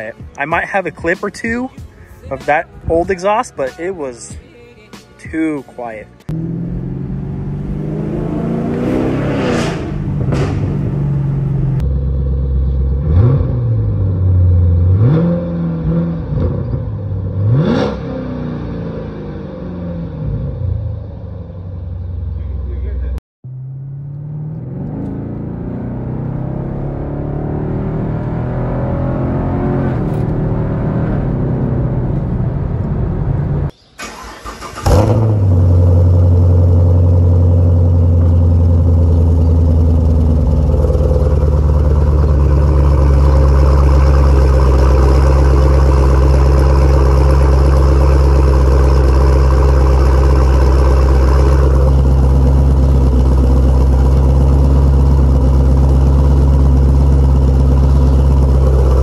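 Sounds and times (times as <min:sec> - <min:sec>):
car engine accelerating: 0:06.2 - 0:59.0
car engine deep idle: 0:36.0 - 0:59.0.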